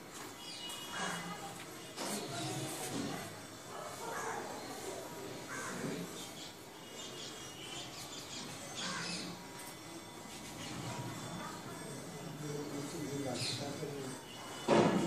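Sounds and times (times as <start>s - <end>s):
crows cawing: 5.5s - 6.1s, 8.8s - 9.3s.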